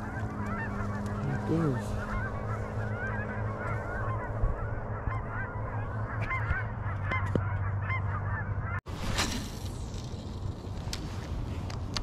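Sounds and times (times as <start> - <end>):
geese honking: 0.0 - 8.8
steady low hum: 0.0 - 12.0.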